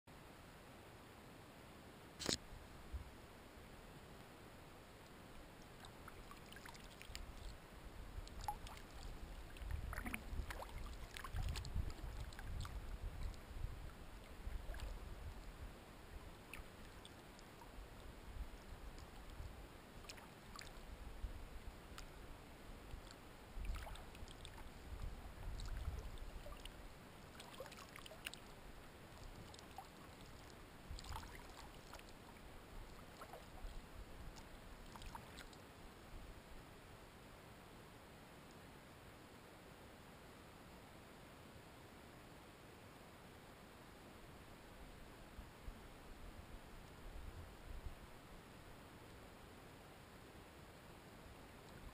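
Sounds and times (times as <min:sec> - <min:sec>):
kayak paddle dips and splashes: 0:05.6 - 0:07.6, 0:08.2 - 0:15.4, 0:16.2 - 0:17.8, 0:20.0 - 0:20.8, 0:22.9 - 0:28.5, 0:29.1 - 0:35.6.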